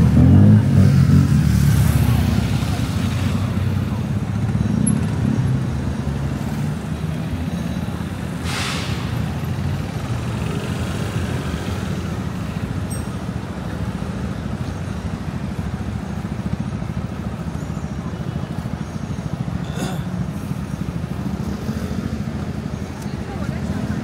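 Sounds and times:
city street traffic: 0.0 - 24.0
short hiss: 8.4 - 9.2.

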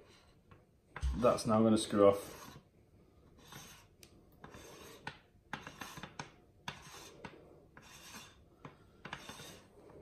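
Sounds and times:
fingers scraping metal threads: 3.4 - 9.7.

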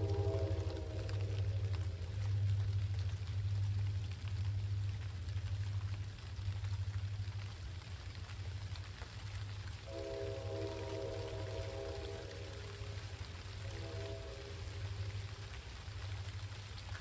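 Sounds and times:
diesel locomotives rumbling: 0.0 - 4.0, 9.8 - 17.0
rain pattering and dripping: 0.0 - 17.0.

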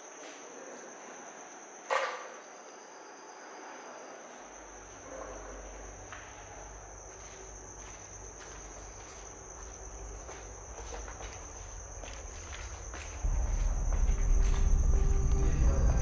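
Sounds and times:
crickets chirring: 0.0 - 16.0
faint footsteps: 4.8 - 16.0
low rumble: 11.7 - 16.0.

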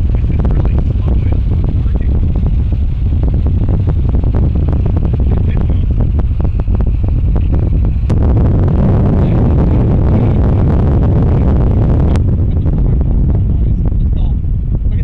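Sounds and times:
road and wind rumble: 0.0 - 15.0
wind buffeting on microphone: 0.0 - 15.0.

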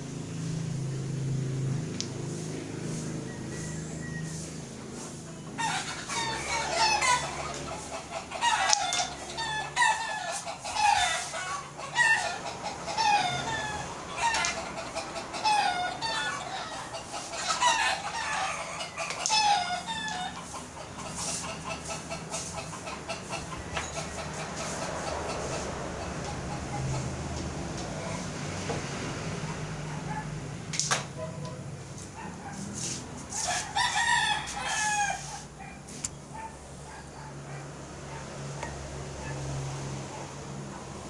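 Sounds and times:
chickens clucking: 1.6 - 41.0.

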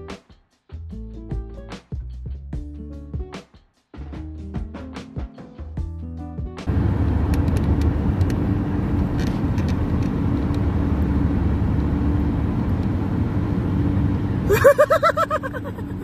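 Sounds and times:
road noise from passing cars: 6.7 - 16.0.

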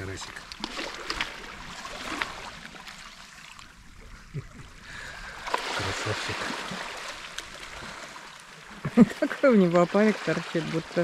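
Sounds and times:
waves washing on pebbles: 5.4 - 8.3.

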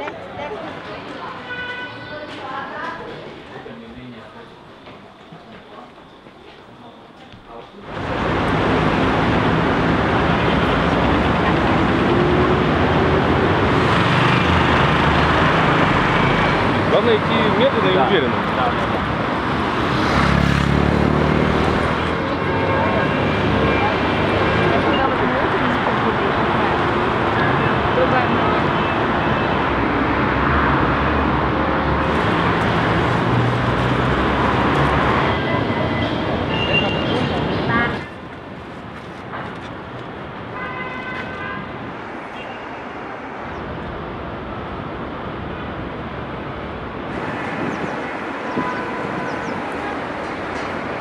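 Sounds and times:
city traffic rushing: 0.0 - 6.6, 7.6 - 51.0.

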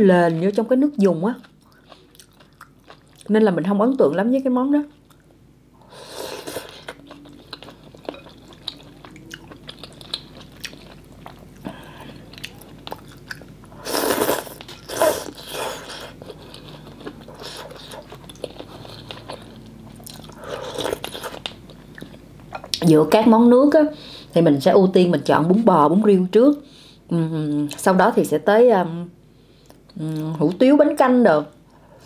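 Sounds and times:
person chewing noodles: 1.4 - 3.3, 5.0 - 22.8.

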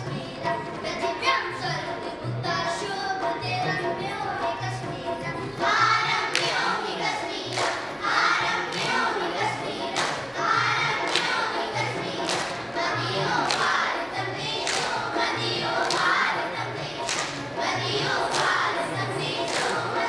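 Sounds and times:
children singing in chorus: 0.0 - 20.0
hand claps: 6.2 - 6.8, 7.4 - 8.0, 8.6 - 13.9, 14.5 - 16.4, 17.0 - 20.0.

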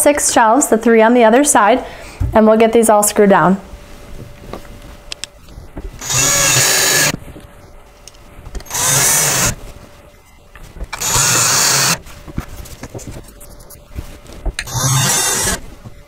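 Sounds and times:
cordless drill driving screws: 6.0 - 7.2, 8.6 - 9.6, 10.9 - 12.0, 14.6 - 15.6.

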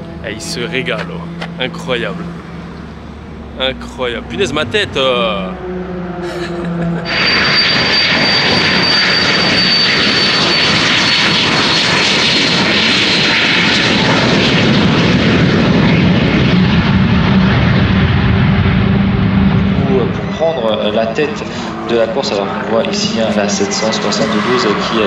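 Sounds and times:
low engine hum: 0.0 - 8.8
jet engine high whine: 0.0 - 25.0.

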